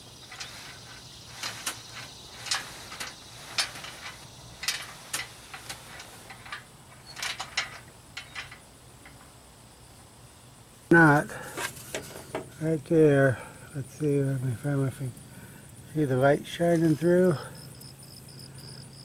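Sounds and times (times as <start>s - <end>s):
metal clicks and clanks: 0.2s - 9.3s.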